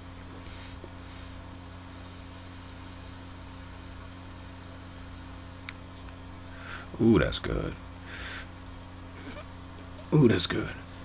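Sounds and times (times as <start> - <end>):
air hissing through vape pen: 0.3 - 5.8.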